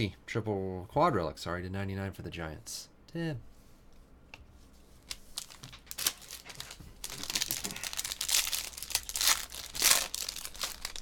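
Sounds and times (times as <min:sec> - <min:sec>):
plastic wrapper crinkling and tearing: 0:05.0 - 0:11.0.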